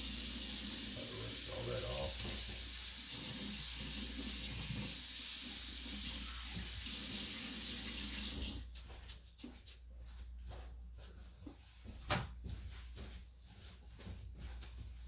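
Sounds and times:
faucet water splashing into sink: 0:00.0 - 0:08.6.

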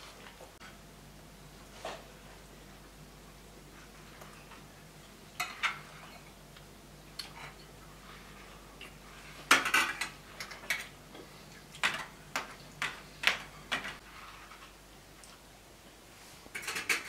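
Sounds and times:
cutlery clinking on plates: 0:16.5 - 0:17.0.

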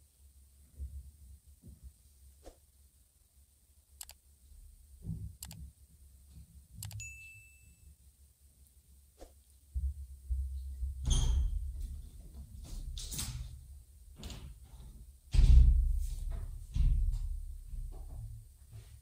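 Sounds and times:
mouse clicks: 0:04.0 - 0:04.2, 0:05.4 - 0:05.6, 0:06.8 - 0:07.0
bell-like ding: 0:07.0 - 0:07.9.

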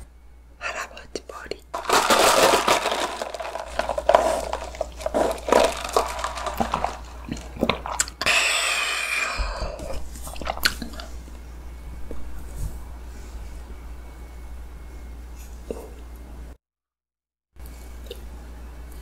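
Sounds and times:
swallowing: 0:07.2 - 0:11.1
wet clicks and lip smacks: 0:07.6 - 0:08.2.

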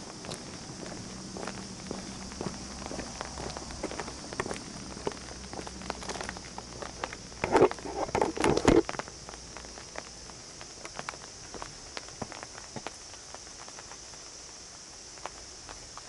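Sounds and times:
scuffing and knocks: 0:00.0 - 0:09.0
footsteps walking: 0:00.0 - 0:14.0
steady high hiss: 0:00.0 - 0:16.0.

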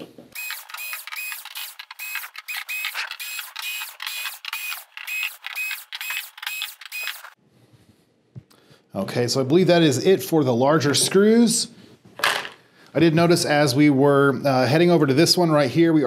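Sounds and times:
cordless screwdriver whirring: 0:00.4 - 0:07.4.

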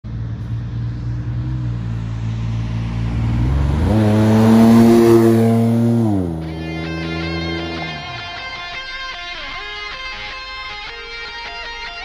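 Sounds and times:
car engine revving drive-by: 0:00.1 - 0:08.8.

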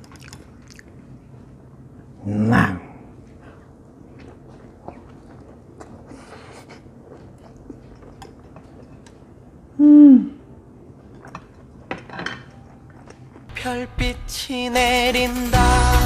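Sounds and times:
man chewing noodles: 0:00.0 - 0:01.6, 0:03.2 - 0:09.7, 0:12.7 - 0:13.5
man humming hmm: 0:09.8 - 0:10.4.

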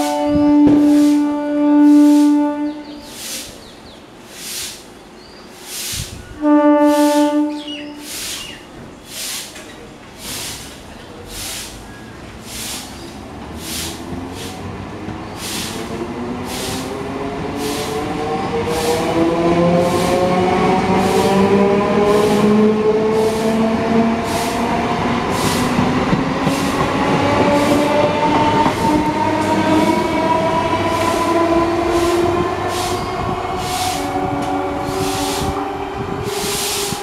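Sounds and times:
train horn pulses: 0:00.0 - 0:03.4, 0:06.4 - 0:08.2
train wheels clicking over rail joints: 0:08.2 - 0:37.0.

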